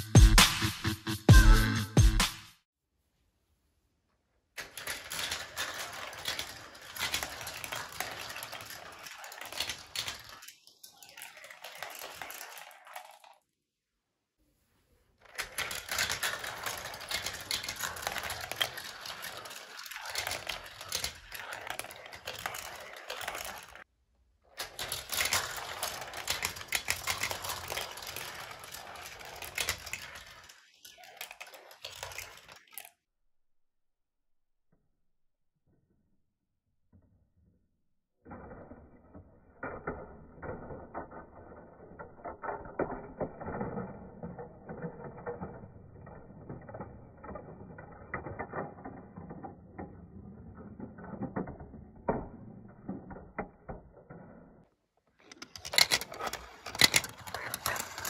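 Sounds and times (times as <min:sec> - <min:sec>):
marbles rattling on track: 0:04.6 - 0:13.5, 0:15.2 - 0:23.9, 0:24.5 - 0:32.9, 0:38.3 - 0:54.6, 0:55.2 - 0:58.0.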